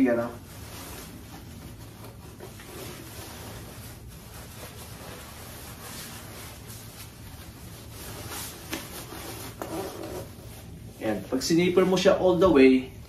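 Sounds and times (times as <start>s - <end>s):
nylon jacket rustling: 0.0s - 12.8s
zipper: 8.9s - 10.5s.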